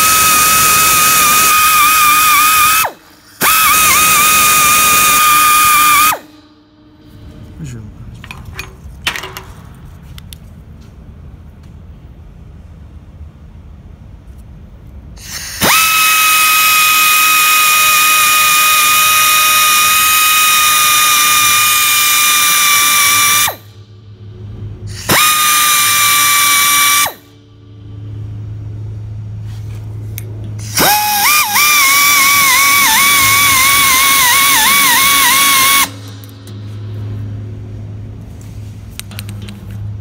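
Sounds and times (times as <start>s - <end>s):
rotary tool whining: 0.0s - 7.4s, 15.2s - 23.9s, 24.9s - 28.1s, 29.3s - 37.6s
low hum: 0.0s - 40.0s.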